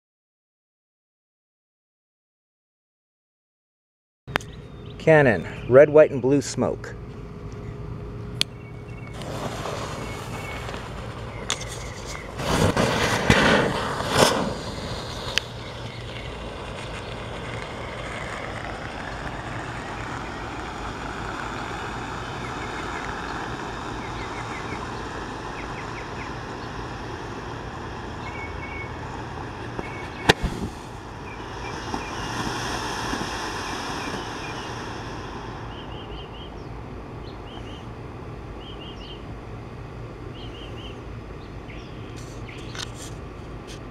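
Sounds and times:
sharp crack: 8.4 - 36.5
smoke firework hissing: 9.0 - 37.9.

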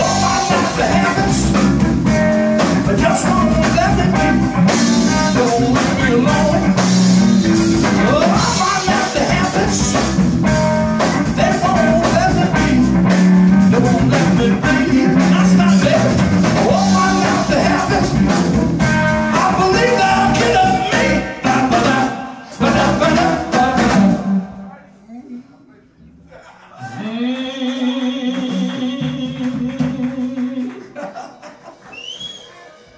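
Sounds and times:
person singing: 0.0 - 6.9, 7.9 - 10.1, 11.2 - 18.5, 19.2 - 25.5, 26.7 - 31.0
electric guitar: 0.0 - 24.4
drum kit: 0.0 - 24.6, 27.8 - 31.0
bass guitar: 0.0 - 24.7, 28.0 - 30.7.

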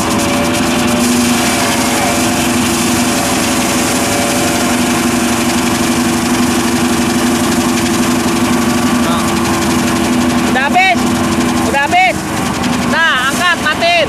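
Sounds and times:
tillage rotor churning soil: 0.0 - 14.0
tractor engine drone: 0.0 - 14.0.

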